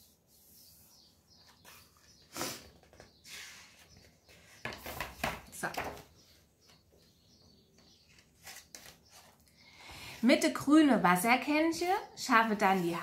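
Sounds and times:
paper pages rustling: 0:08.1 - 0:09.4.

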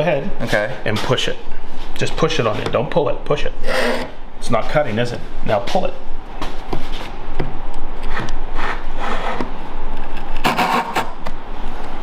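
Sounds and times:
hand saw cutting a board: 0:10.4 - 0:11.1.

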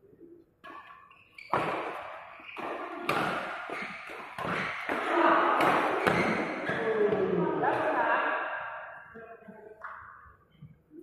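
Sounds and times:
rackets striking shuttlecock: 0:00.6 - 0:06.8.

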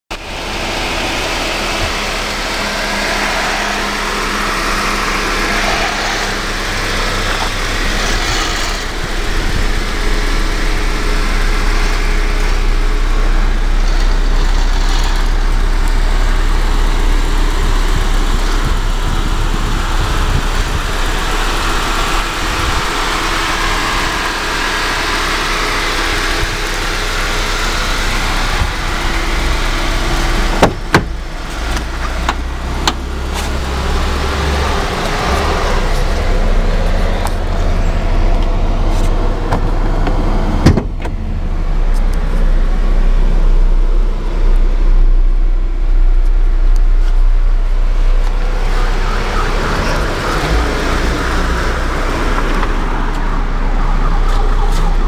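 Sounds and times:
car engine idling: 0:00.1 - 0:55.0.

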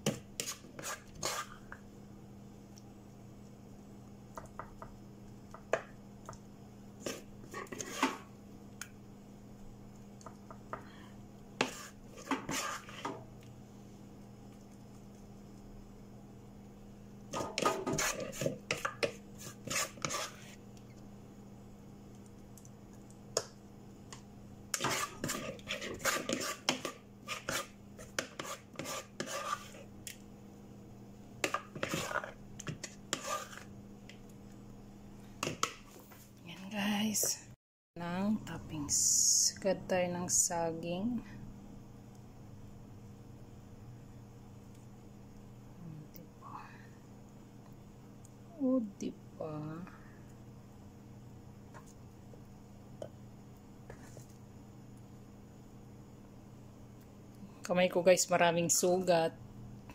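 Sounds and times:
utensils scraping a plastic bowl: 0:07.0 - 0:08.2, 0:11.6 - 0:13.2, 0:17.4 - 0:20.6, 0:24.8 - 0:29.9, 0:31.4 - 0:33.7.

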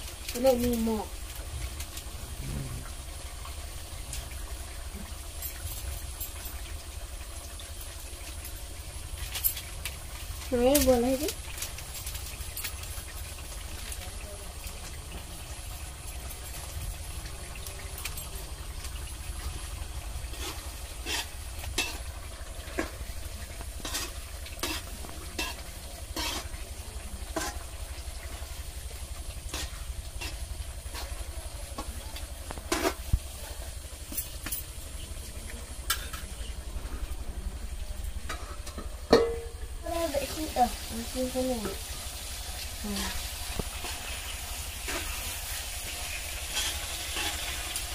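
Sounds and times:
faint sizzle: 0:00.0 - 0:47.9
low hum: 0:01.3 - 0:06.9, 0:33.2 - 0:40.3
utensil scraping metal pan: 0:20.3 - 0:22.1, 0:23.8 - 0:26.6, 0:27.3 - 0:27.6, 0:43.0 - 0:47.8.

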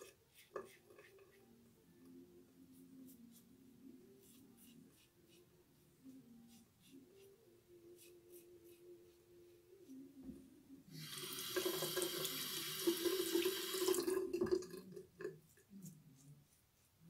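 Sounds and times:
sink tap running: 0:11.0 - 0:14.2.

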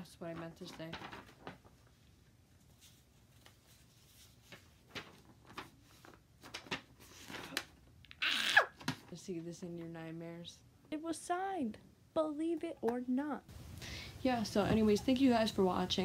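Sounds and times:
paper crackling and rustling: 0:00.0 - 0:07.9.

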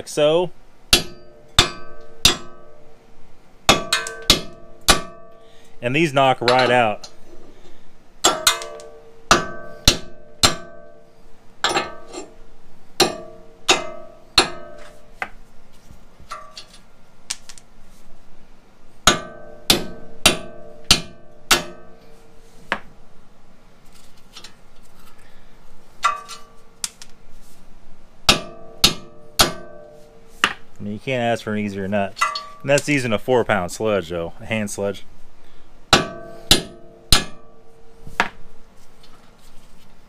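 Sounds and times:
hammer striking metal studs: 0:00.9 - 0:02.8, 0:03.7 - 0:05.4, 0:06.4 - 0:07.2, 0:08.2 - 0:11.0, 0:11.6 - 0:12.3, 0:13.0 - 0:15.0, 0:19.1 - 0:22.1, 0:26.0 - 0:26.6, 0:28.3 - 0:30.6, 0:32.2 - 0:32.9, 0:35.9 - 0:37.6.

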